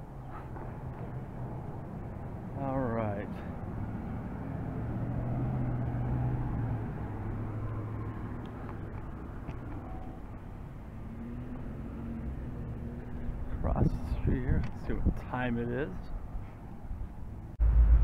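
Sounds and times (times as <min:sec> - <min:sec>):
traffic rumble: 0:00.0 - 0:18.0
car driving past: 0:03.3 - 0:09.0, 0:09.6 - 0:13.4.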